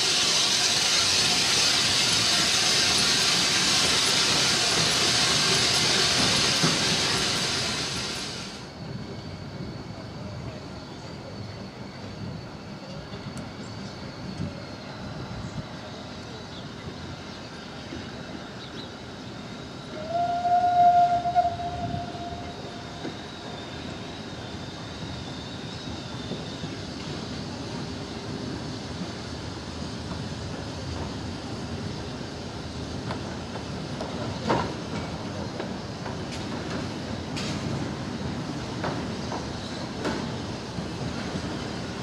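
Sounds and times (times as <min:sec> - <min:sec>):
steam locomotive moving slowly: 0:00.0 - 0:42.0
steam whistle blast: 0:19.9 - 0:22.9.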